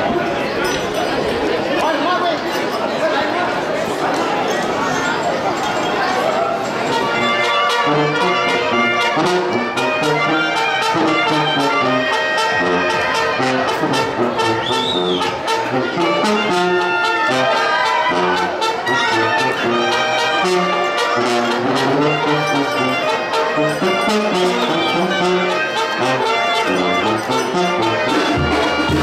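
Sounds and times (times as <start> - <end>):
horns playing melody: 6.8 - 29.0
steady drum beat: 28.1 - 29.0.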